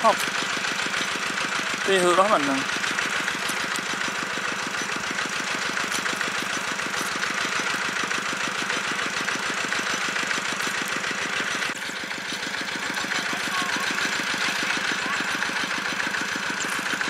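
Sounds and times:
pump engine running: 0.0 - 17.0.

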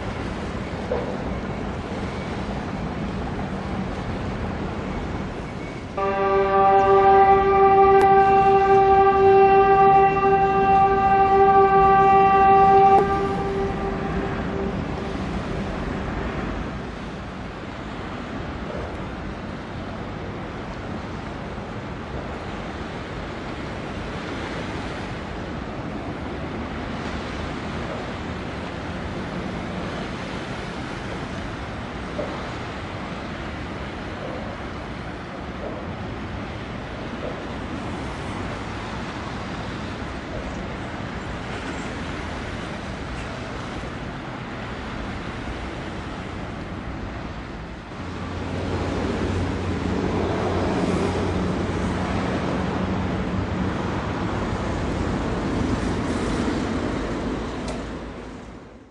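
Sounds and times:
water noise: 0.0 - 58.9
wind: 0.0 - 58.9
horn sustained tone: 6.0 - 15.7.

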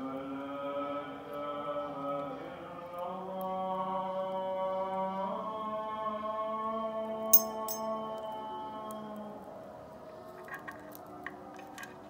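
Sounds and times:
chant-like vocal music: 0.0 - 7.1.

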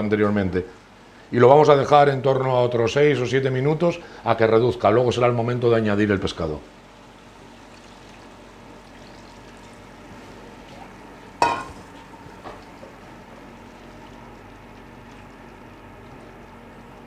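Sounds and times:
broth simmering hiss: 3.6 - 17.0
saucepan set down clank: 11.4 - 11.9
spoon knocking in pan: 11.4 - 11.9.

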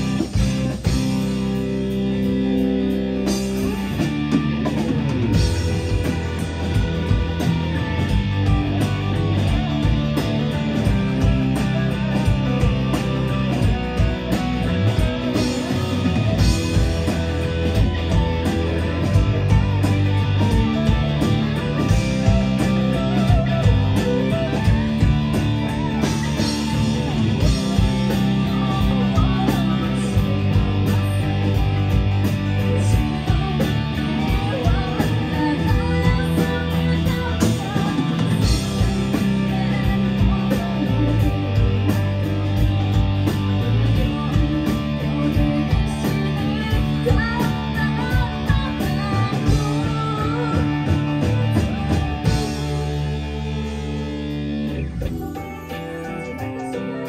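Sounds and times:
bass guitar: 0.0 - 57.0
distorted electric guitars: 0.0 - 57.0
drum kit: 0.0 - 57.0.

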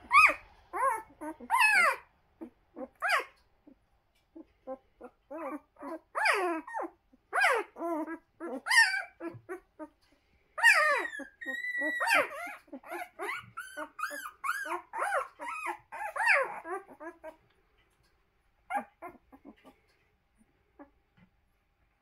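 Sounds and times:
puppies whimpering and squealing: 0.0 - 10.0, 10.6 - 17.5, 18.7 - 19.8.

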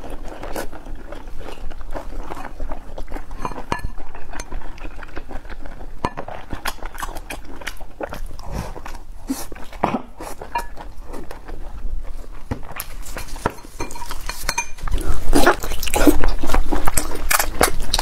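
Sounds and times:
wet chewing mouth smacks: 14.9 - 18.0.

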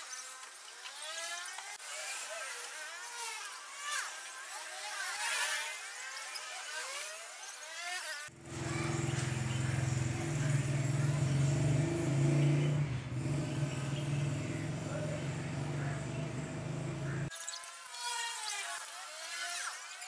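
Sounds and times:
air compressor running: 13.1 - 17.3.

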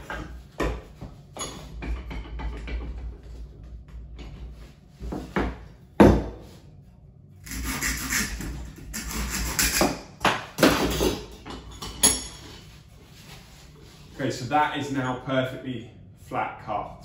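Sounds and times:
hand saw cutting bamboo: 7.4 - 10.0.

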